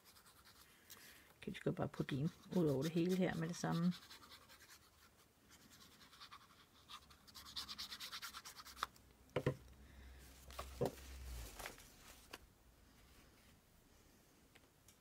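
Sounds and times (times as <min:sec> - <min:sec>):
glue rubbed over paper: 0:00.0 - 0:00.7, 0:01.9 - 0:08.9
knocks and taps: 0:09.4 - 0:09.6.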